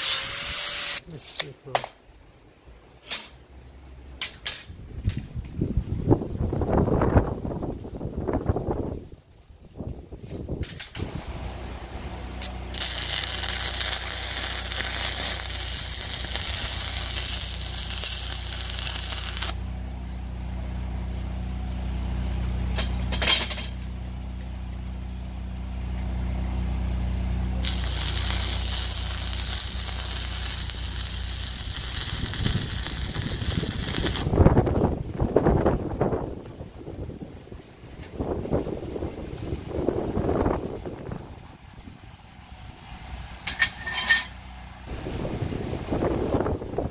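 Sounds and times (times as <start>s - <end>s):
welding arc crackling and hissing: 0.0s - 1.5s, 11.0s - 19.8s, 27.4s - 35.8s
low hum: 10.8s - 46.8s.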